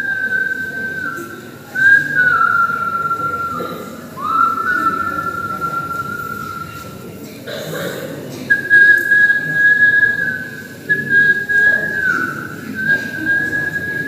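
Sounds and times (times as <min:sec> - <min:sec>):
person whistling a slow tune: 0:00.0 - 0:07.1, 0:08.5 - 0:14.0.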